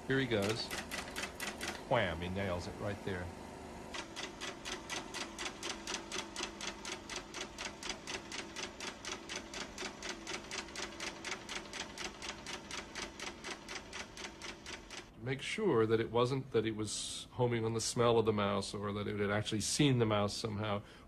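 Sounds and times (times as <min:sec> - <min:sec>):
faint steady hum: 0:00.0 - 0:21.0
rapid even clicking: 0:00.3 - 0:01.9, 0:03.9 - 0:15.1.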